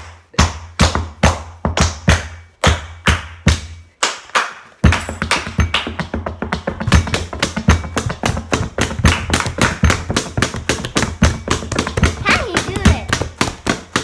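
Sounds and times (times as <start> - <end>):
hands tapping a tabletop: 4.8 - 14.0.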